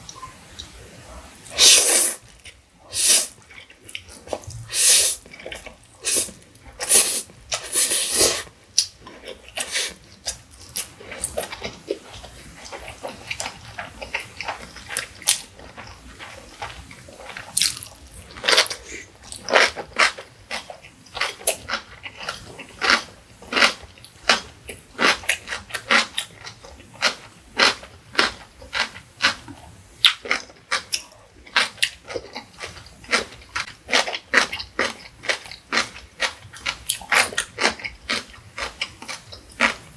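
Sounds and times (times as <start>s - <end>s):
wet noodle slurp: 6.0s - 8.5s.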